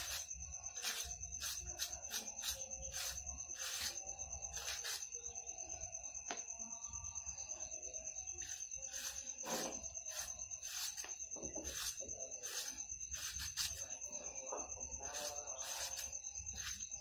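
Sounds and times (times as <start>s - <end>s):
shredder scraping vegetable: 0.0s - 5.0s, 8.4s - 13.9s, 15.0s - 16.8s
crickets chirring: 0.0s - 17.0s.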